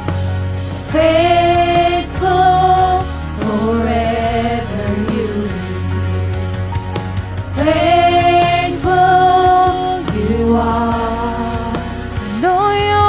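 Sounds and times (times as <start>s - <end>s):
low musical accompaniment: 0.0s - 13.0s
vocalists singing held notes: 0.9s - 6.1s, 7.6s - 13.0s.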